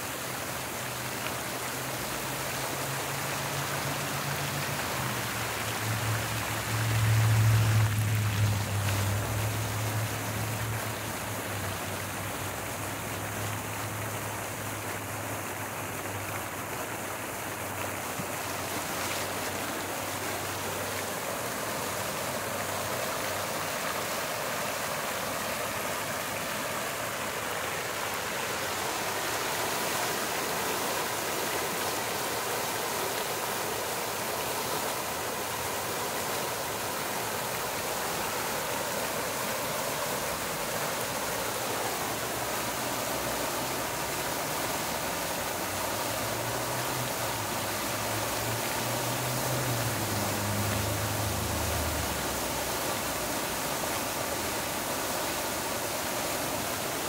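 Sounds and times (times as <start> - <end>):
fountain splashing into basin: 0.0 - 57.0.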